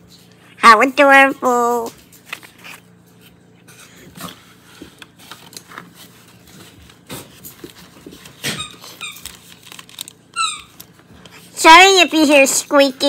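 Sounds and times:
snack wrappers crinkling: 4.9 - 11.4
squeaky dog toy squeaking: 8.4 - 9.3, 10.3 - 10.8.

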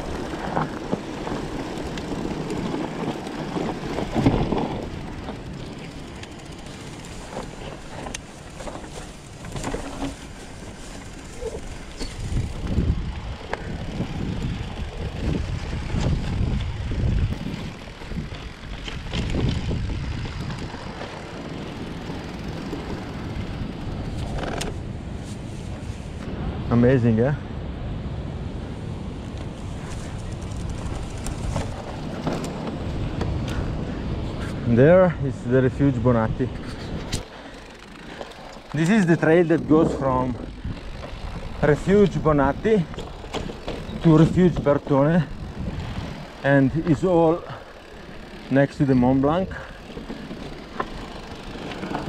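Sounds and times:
bike knocks and rattles: 0.0 - 24.9, 29.8 - 33.7, 36.6 - 52.0
wind buffeting microphone: 0.0 - 26.8, 27.6 - 52.0.

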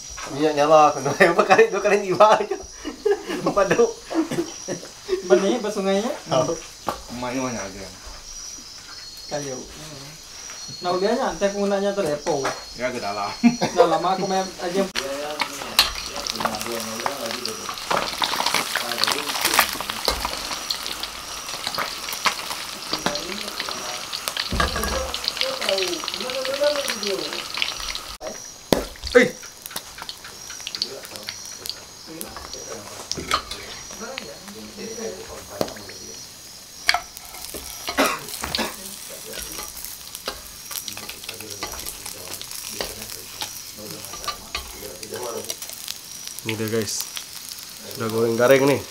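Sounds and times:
fish sizzling in hot oil: 0.0 - 48.9
metal spatula scraping wok: 36.9 - 45.9.

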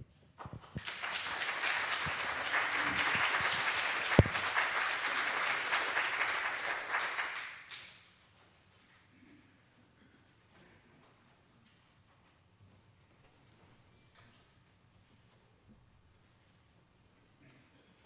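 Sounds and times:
congregation applauding: 0.4 - 8.2.

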